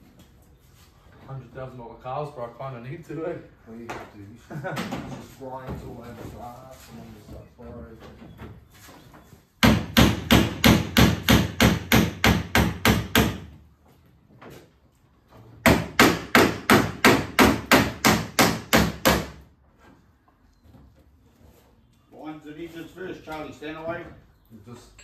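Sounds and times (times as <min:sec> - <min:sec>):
hammer beating sheet metal: 0:09.6 - 0:13.5, 0:15.6 - 0:19.4.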